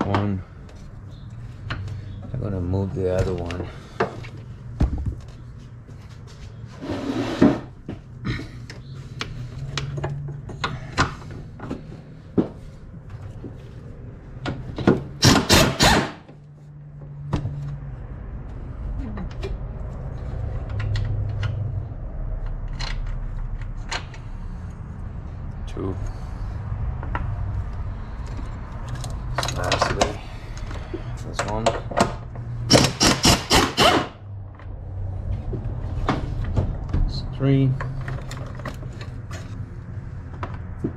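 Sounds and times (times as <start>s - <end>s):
pneumatic wrench bursts: 15.2s - 16.2s, 32.7s - 34.2s.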